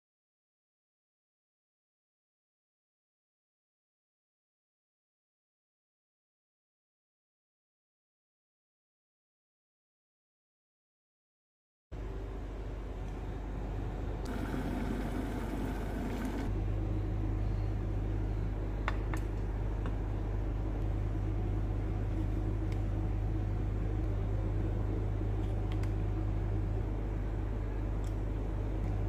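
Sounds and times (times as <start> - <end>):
low mechanical hum: 12.0 - 29.0
coffee pouring into a dish: 14.3 - 16.5.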